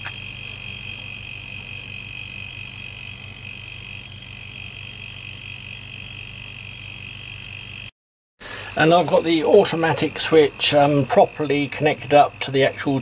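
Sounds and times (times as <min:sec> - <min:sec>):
air compressor humming and whining: 0:00.0 - 0:13.0.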